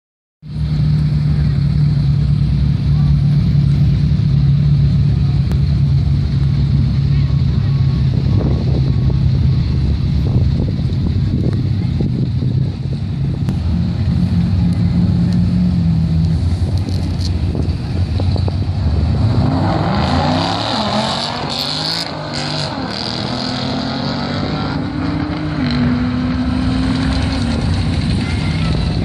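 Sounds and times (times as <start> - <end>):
race car engines revving: 0.5 - 29.0
cars accelerating through gears: 18.8 - 28.2.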